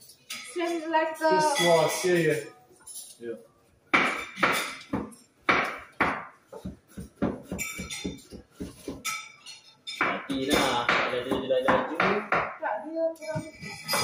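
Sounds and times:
kitchenware clinking: 0.0s - 3.2s, 4.0s - 14.0s
knife chopping on cutting board: 3.9s - 9.1s.

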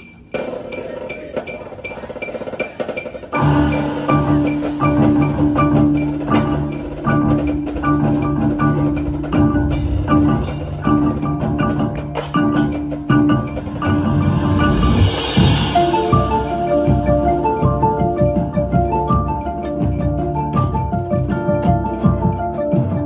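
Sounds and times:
marimba quick runs: 0.0s - 23.0s
held low ensemble notes: 3.4s - 23.0s
rising wash of high sound: 13.2s - 18.2s.

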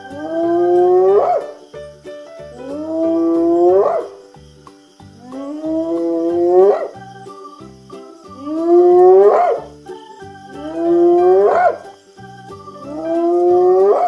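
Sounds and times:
light plinking music: 0.0s - 14.0s
hyena whooping: 0.1s - 1.5s, 2.6s - 4.2s, 5.2s - 7.0s, 8.4s - 9.7s, 10.6s - 11.8s, 12.8s - 14.0s.

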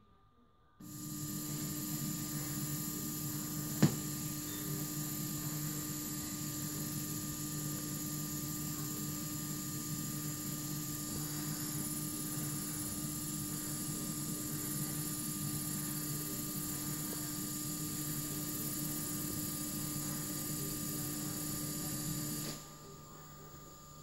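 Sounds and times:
tape hiss and hum: 0.8s - 16.1s
faint steady tones: 0.8s - 24.0s.

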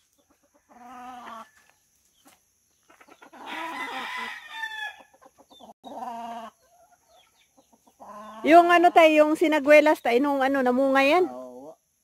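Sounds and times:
chickens clucking: 0.0s - 9.8s
rooster crowing: 3.3s - 5.1s.

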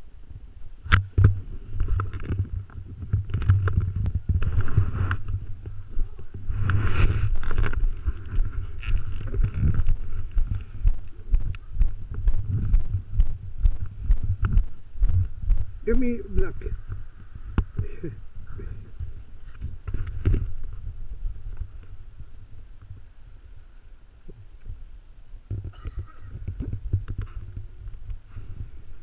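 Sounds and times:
wind buffeting on microphone: 0.0s - 29.0s
camera handling knocks and rubs: 19.0s - 20.8s.

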